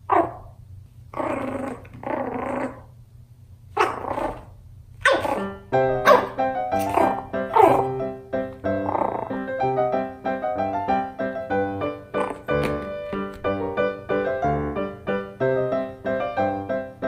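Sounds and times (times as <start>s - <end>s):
puppy yapping: 0.1s - 0.5s, 3.8s - 8.0s
puppy growling: 1.1s - 2.9s, 3.8s - 9.6s, 12.1s - 12.8s
cheerful piano music: 5.2s - 17.0s.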